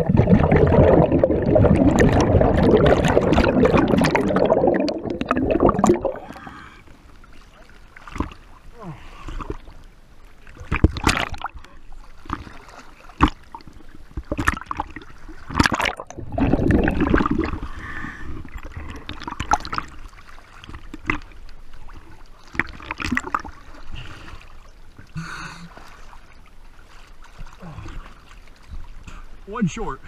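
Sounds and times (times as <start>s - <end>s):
underwater gurgling: 0.0s - 29.4s
water splashing and sloshing: 0.0s - 30.0s.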